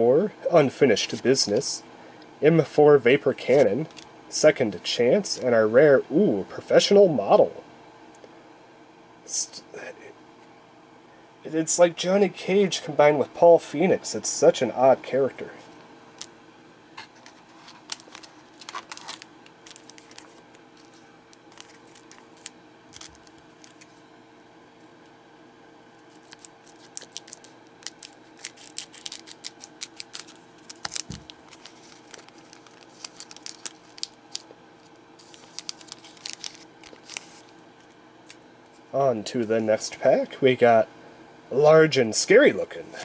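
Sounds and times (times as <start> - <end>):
faint steady hum: 0.0 - 43.0
wrapper crinkling: 17.2 - 23.9, 26.1 - 37.6
scissors snipping foil wrapper: 26.2 - 34.4, 35.2 - 37.2.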